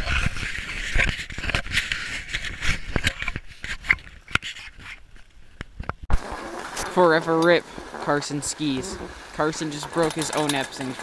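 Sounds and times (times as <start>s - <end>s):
skis scraping over snow: 6.1s - 11.0s.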